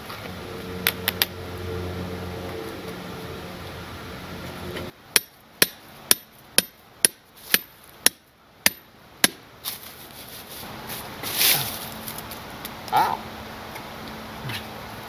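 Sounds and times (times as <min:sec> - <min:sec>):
metal pry bar striking rock: 0:05.1 - 0:09.4.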